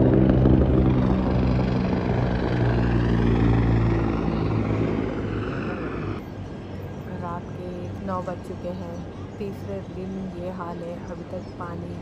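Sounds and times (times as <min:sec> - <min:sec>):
aircraft engine droning overhead: 0:00.0 - 0:12.0.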